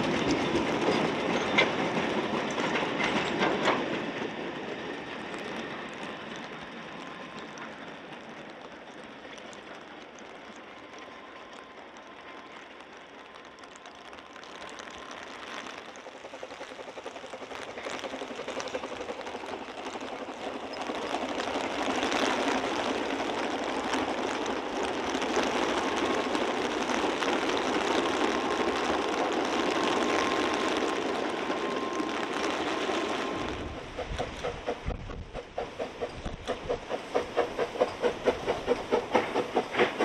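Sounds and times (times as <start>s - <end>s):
steam train passing: 0.0s - 40.0s.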